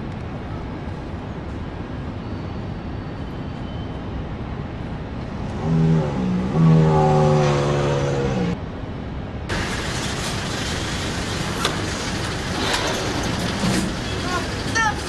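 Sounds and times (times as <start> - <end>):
motor vehicle rumbling: 4.2 - 15.0.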